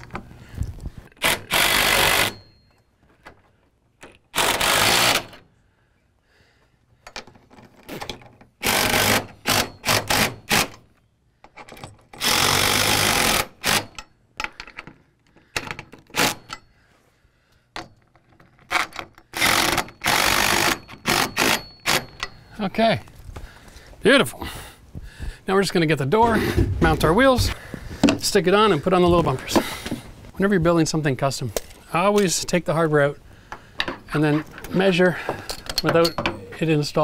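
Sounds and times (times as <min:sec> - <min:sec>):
impact driver hammering: 0:19.4 - 0:22.4.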